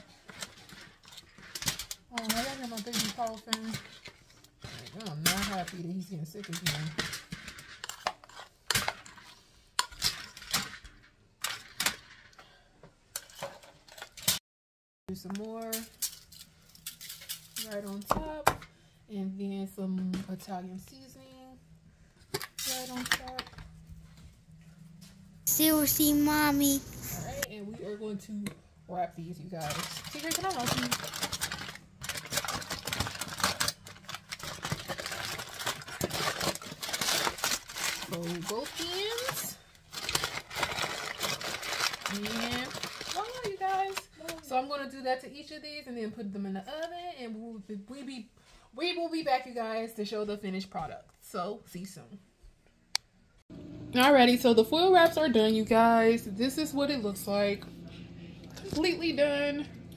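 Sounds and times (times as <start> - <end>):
aluminium foil crinkling: 0.2 - 5.8, 15.7 - 18.0, 29.6 - 44.5.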